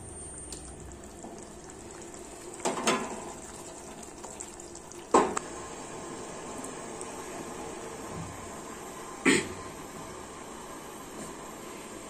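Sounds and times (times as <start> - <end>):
curry sizzling in a pan: 0.1 - 8.9.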